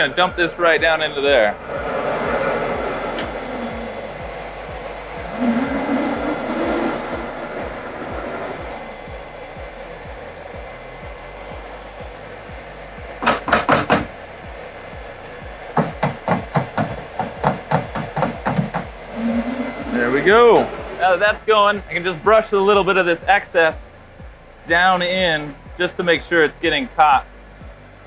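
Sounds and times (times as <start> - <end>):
sharp knocks: 13.2 - 14.1, 15.8 - 20.0.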